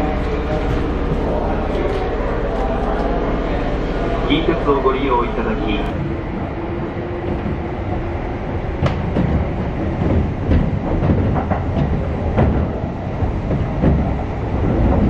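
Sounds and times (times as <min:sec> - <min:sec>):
train rumble: 0:00.0 - 0:15.0
wheels clacking over rail joints: 0:05.9 - 0:15.0.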